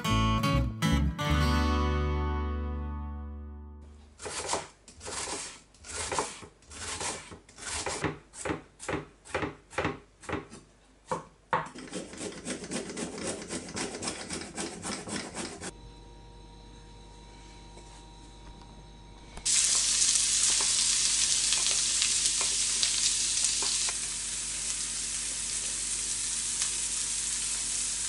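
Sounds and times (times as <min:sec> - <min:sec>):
knife chopping on wooden board: 0:04.2 - 0:15.7.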